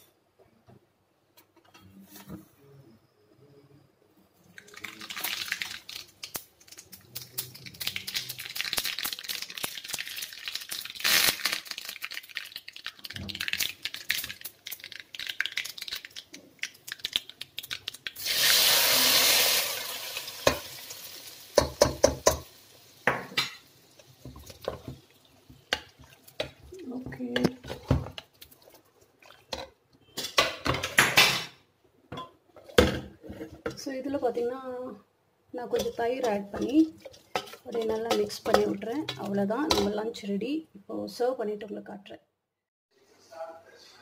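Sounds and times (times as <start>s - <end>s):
mustard seeds crackling in hot oil: 4.6s - 28.8s
pan and spoon knocking on pot: 21.6s - 23.6s.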